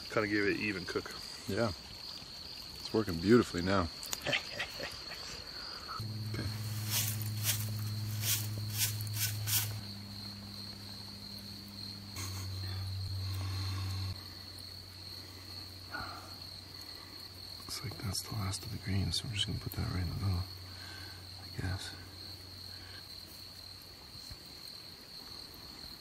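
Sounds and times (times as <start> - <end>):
crickets trilling: 0.0 - 26.0
low hum: 6.0 - 15.4.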